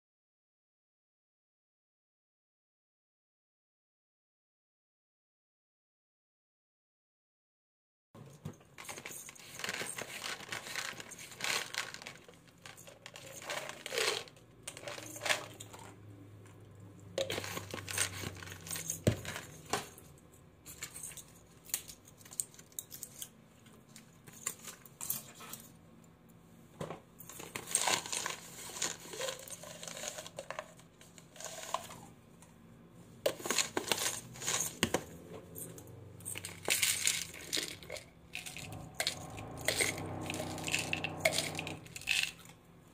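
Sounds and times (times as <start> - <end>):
foil and plastic crinkling: 8.8 - 15.8, 27.4 - 30.5
pill bottles clicking: 36.3 - 42.4.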